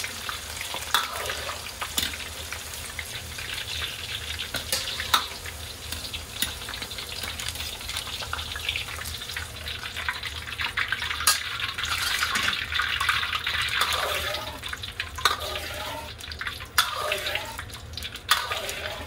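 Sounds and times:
food sizzling in hot oil: 0.0 - 19.0
metal utensils clinking on wok: 4.5 - 5.4, 11.2 - 12.6, 15.2 - 16.1, 16.8 - 17.5.

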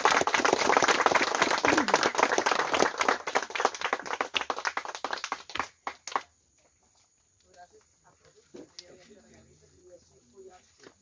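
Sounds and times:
crowd applause: 0.0 - 6.2.

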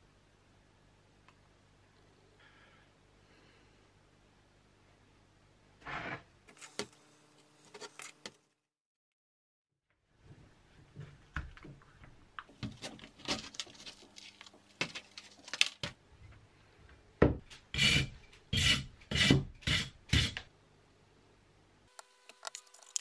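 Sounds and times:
saw blade rasping on plaster: 17.8 - 20.4.

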